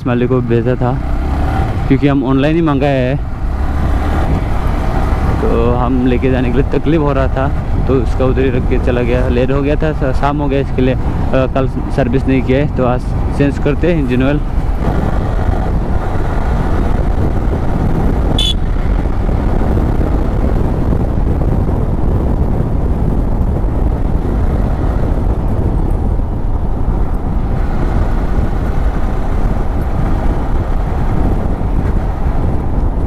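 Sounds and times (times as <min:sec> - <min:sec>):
wind on microphone: 0:00.0 - 0:33.0
motorcycle engine running: 0:13.0 - 0:33.0.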